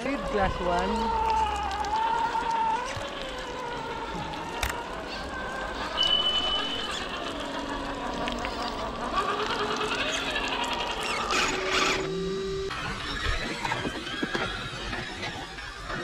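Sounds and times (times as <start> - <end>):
electric motors whining: 0.0 - 16.0
scattered clicks: 1.2 - 12.1.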